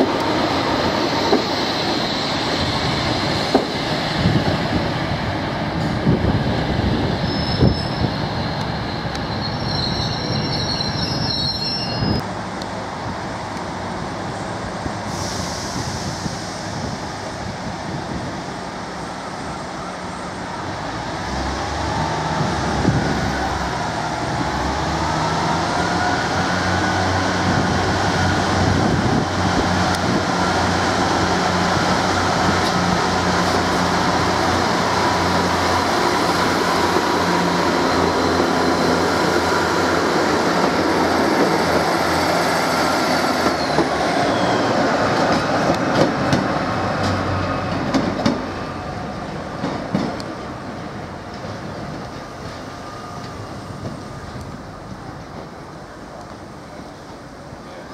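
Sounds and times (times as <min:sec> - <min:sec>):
diesel train engines revving: 0:00.0 - 0:57.9.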